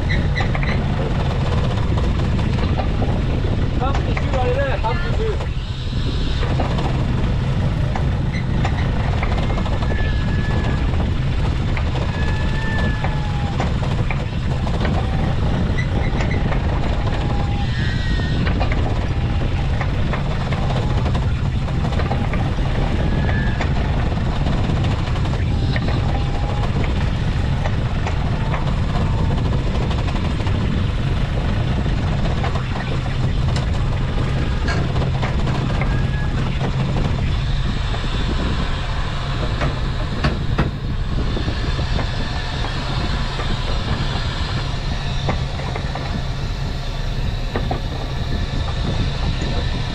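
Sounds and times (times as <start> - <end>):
boat engine droning: 0.0 - 49.9
short high squeaks: 8.2 - 10.9, 17.2 - 19.0.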